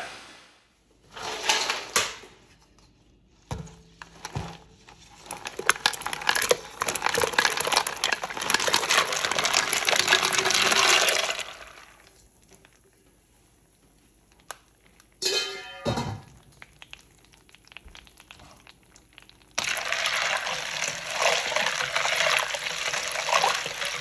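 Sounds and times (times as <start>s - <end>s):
ice cubes clattering into liquid: 4.2s - 12.2s, 18.8s - 24.0s.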